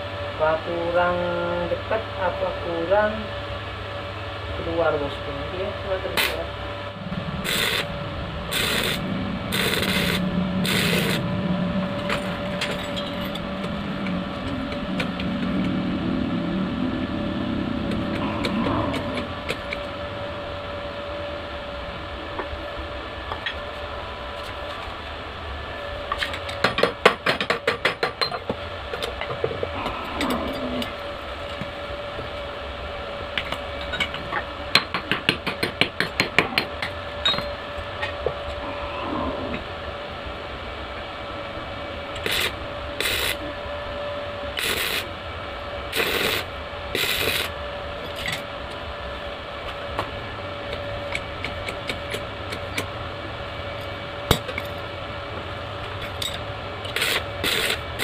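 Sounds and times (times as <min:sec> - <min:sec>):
steady hum: 0:00.0 - 0:58.0
arc welding crackling: 0:06.0 - 0:06.4, 0:07.2 - 0:11.3, 0:42.1 - 0:43.5, 0:44.5 - 0:45.1, 0:45.9 - 0:47.6, 0:56.0 - 0:58.0.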